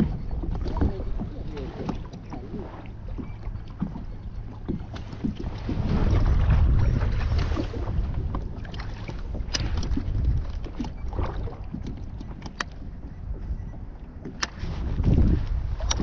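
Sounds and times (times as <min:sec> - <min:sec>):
water sloshing around kayak: 0:00.0 - 0:16.0
wind rumbling on microphone: 0:00.0 - 0:16.0
sharp clicks: 0:11.8 - 0:12.8.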